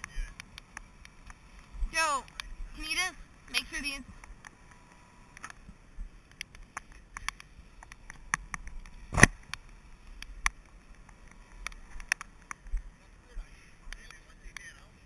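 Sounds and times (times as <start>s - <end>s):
sharp knock: 9.1s - 9.4s.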